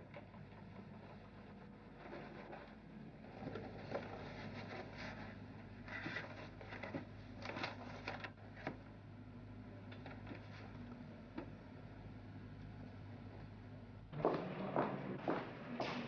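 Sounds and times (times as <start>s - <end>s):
low steady hum: 0.0s - 16.0s
cardboard and paper rustling: 3.3s - 8.8s.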